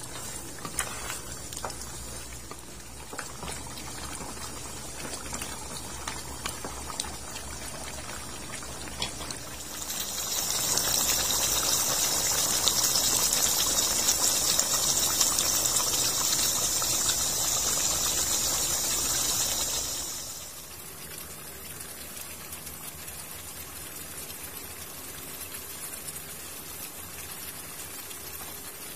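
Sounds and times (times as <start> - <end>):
sauce bubbling and popping: 0.0 - 20.6
sizzling hiss: 0.0 - 20.8.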